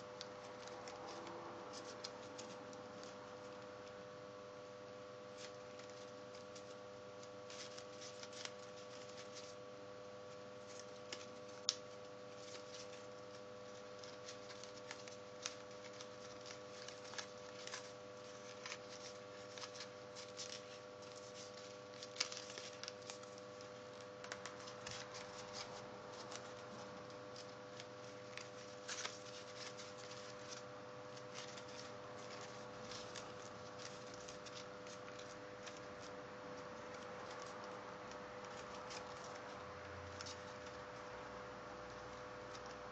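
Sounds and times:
small crackles and clicks: 0.0 - 41.1, 41.9 - 42.9
faint steady hum: 0.0 - 42.9
paper crinkling and rustling: 0.0 - 42.9.

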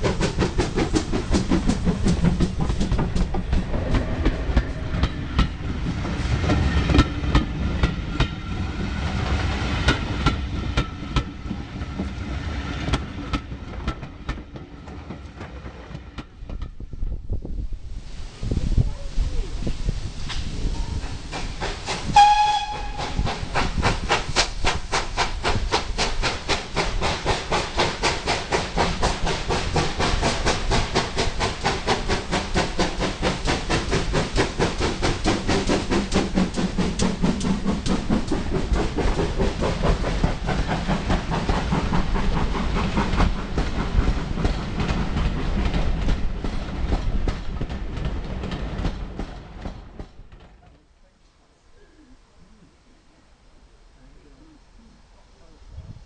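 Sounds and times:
train exhaust and wheels on rails: 0.0 - 51.6
steam locomotive whistle: 22.1 - 23.5.

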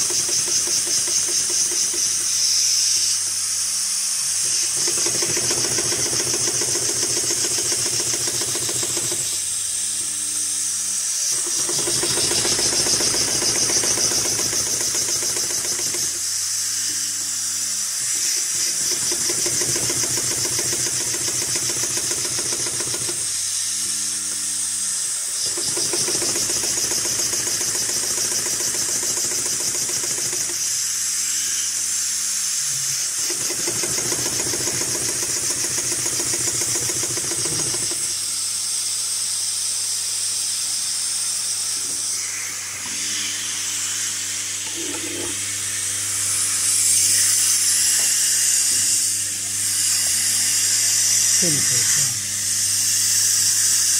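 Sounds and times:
industrial sewing machine stitching: 0.0 - 2.6, 4.4 - 9.5, 11.2 - 16.3, 18.0 - 23.4, 25.4 - 30.9, 33.0 - 38.2.

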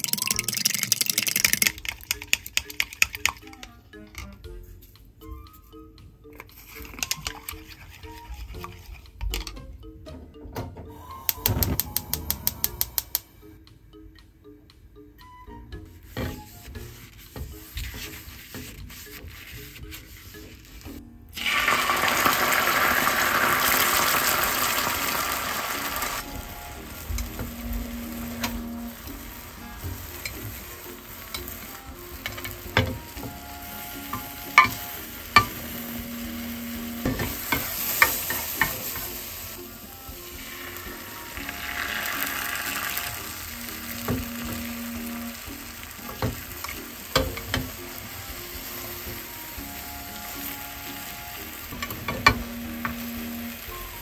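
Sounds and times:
egg sizzling in hot pan: 0.0 - 3.5, 17.3 - 54.0.

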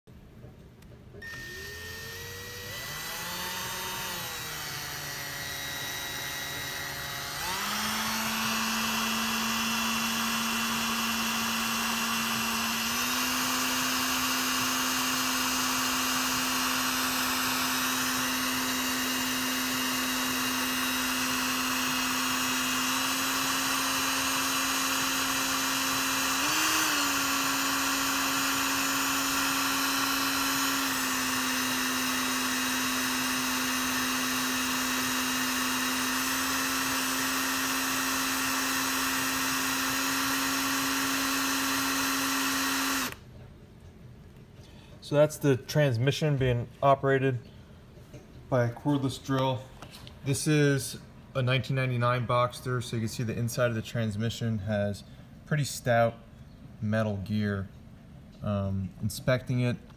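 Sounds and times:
cordless drill motor whine: 1.2 - 43.2.

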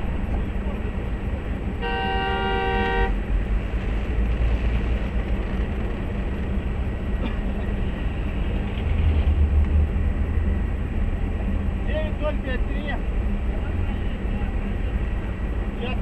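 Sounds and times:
highway traffic rumble: 0.0 - 16.0
vehicle horn blast: 1.8 - 3.2
vehicle passing close: 7.8 - 11.8.

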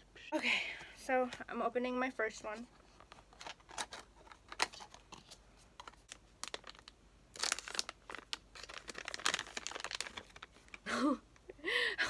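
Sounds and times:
plastic bag crinkling and tearing: 5.9 - 10.9.

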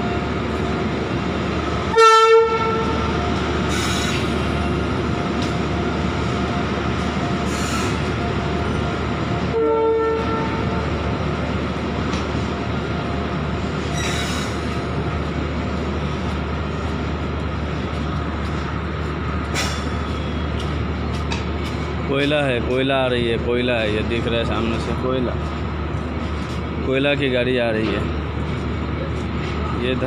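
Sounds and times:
freight train rolling past: 0.0 - 30.0
locomotive air horn blasts: 1.9 - 3.1, 9.5 - 10.8.

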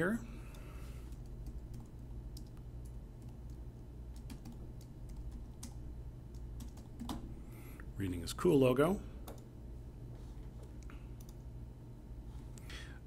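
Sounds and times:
faint low hum: 0.0 - 13.0
typing on a keyboard: 0.5 - 7.2.

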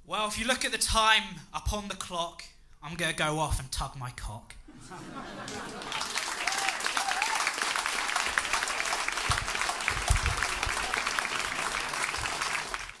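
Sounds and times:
audience applauding: 5.1 - 13.0.

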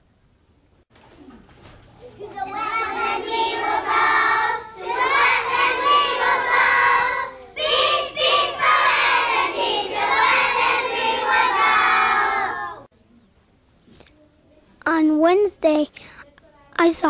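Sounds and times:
children singing together: 2.3 - 12.9.

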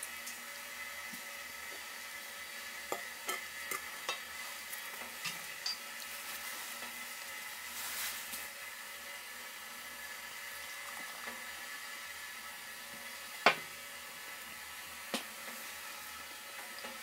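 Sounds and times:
food sizzling in oil: 0.0 - 17.0
utensil clicking against pan: 2.9 - 4.3.

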